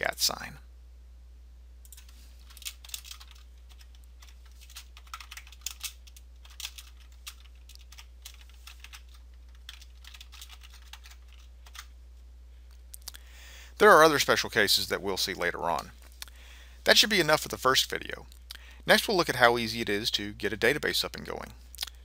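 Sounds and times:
computer keyboard typing: 1.9s - 11.9s.

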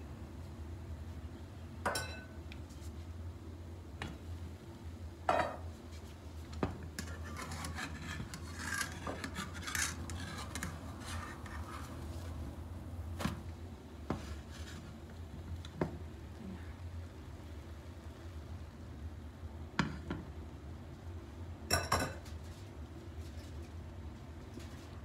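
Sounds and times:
metal turner scraping a pan: 6.9s - 12.0s.

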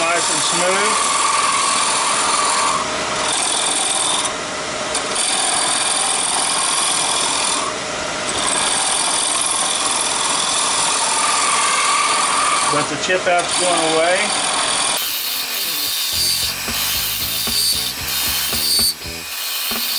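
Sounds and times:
lathe whining: 0.0s - 19.9s
turning tool scraping wood: 13.4s - 19.9s.

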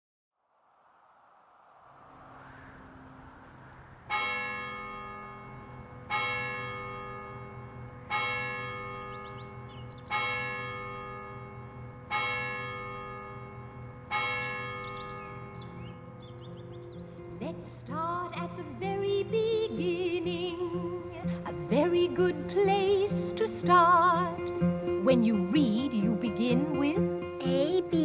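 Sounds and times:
outdoor ambience: 0.3s - 28.0s
large church bell tolling: 4.1s - 17.3s.

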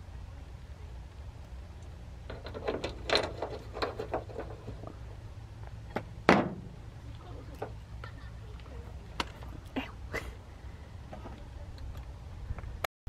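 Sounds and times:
low steady rumble: 0.0s - 12.9s
loud knock: 6.3s - 6.7s.

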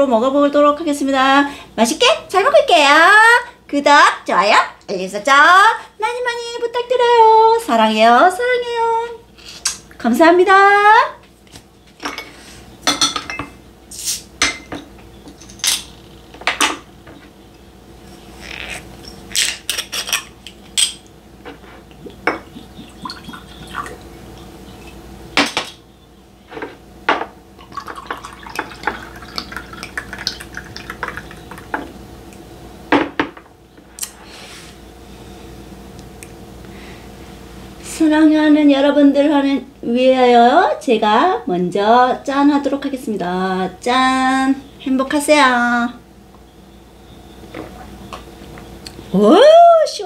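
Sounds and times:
glass bottles clinking: 12.0s - 13.6s, 22.1s - 24.0s, 27.6s - 31.8s
liquid pouring into glass: 22.3s - 24.2s, 27.6s - 31.9s.

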